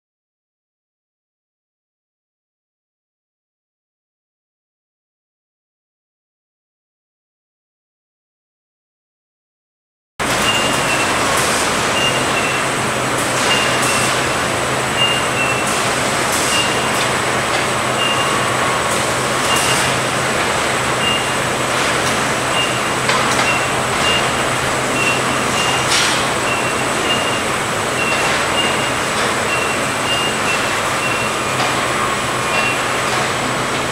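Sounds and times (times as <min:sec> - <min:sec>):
two-note warning beep: 0:21.0 - 0:21.4, 0:25.0 - 0:31.3.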